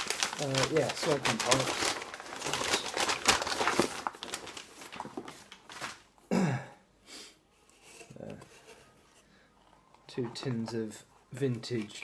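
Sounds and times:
packing paper crinkling: 0.0s - 6.2s.

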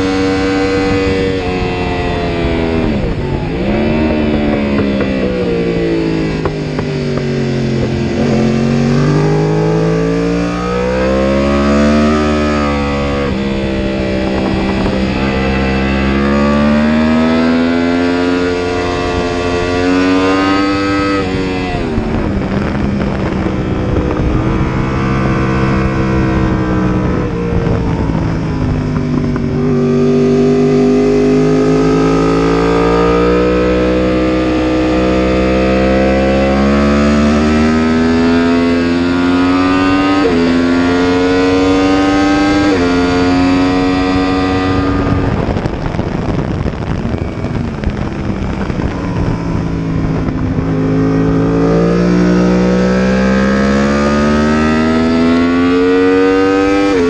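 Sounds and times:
motorcycle engine revving: 0.0s - 57.0s
wind rushing: 0.0s - 57.0s.

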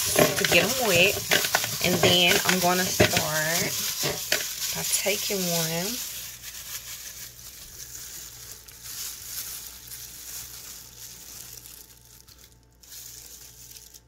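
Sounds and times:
plastic glove crinkling: 0.0s - 14.0s
strawberry rolled in powder: 0.0s - 14.0s.

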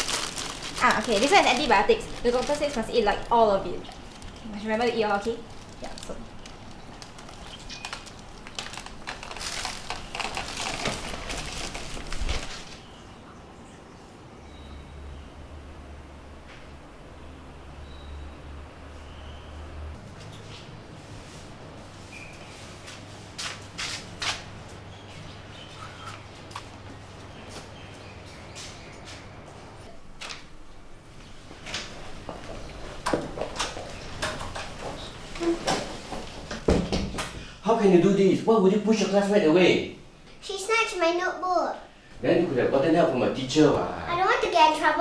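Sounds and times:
plastic bag crinkling: 0.0s - 12.8s
steady low hum: 0.0s - 36.6s.

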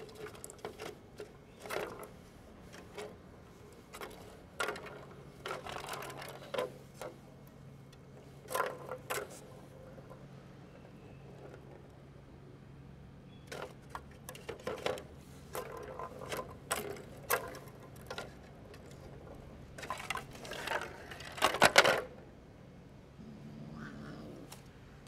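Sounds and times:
plastic balls rattling in tracks: 0.0s - 3.2s, 3.8s - 7.2s, 8.4s - 10.2s, 13.5s - 22.2s.

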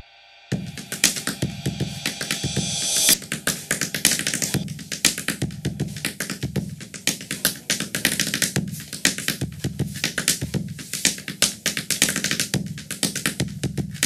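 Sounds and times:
short bright swell: 0.0s - 4.6s
gourd drum struck by hand: 0.5s - 8.8s.

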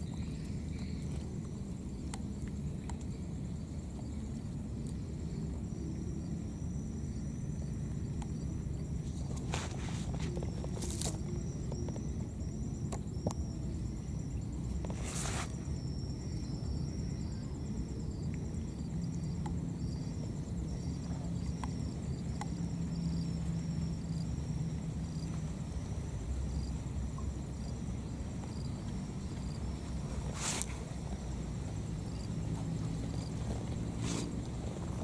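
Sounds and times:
high insect trill: 0.0s - 35.0s
short rustle: 9.2s - 11.2s, 14.9s - 15.6s, 30.2s - 30.9s, 33.5s - 35.0s.

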